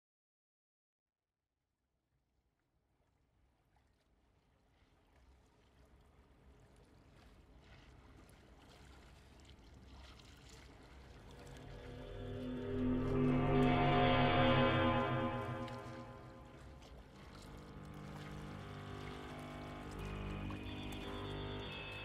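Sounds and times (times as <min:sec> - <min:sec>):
water lapping and trickling: 0:02.6 - 0:22.0
low rumble: 0:11.2 - 0:20.4.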